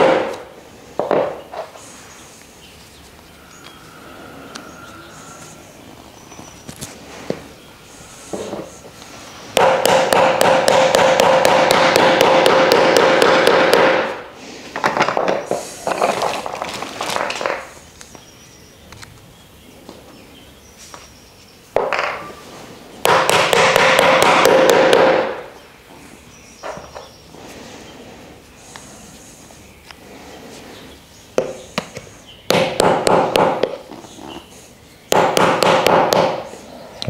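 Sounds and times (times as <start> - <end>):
hammer tapping on wood: 9.6 - 14.0, 35.1 - 36.4.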